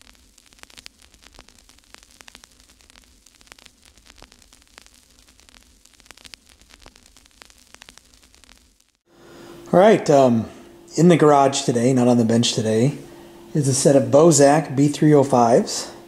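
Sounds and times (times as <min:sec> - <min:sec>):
crackling static: 0:00.0 - 0:16.0
low hum: 0:09.1 - 0:16.0.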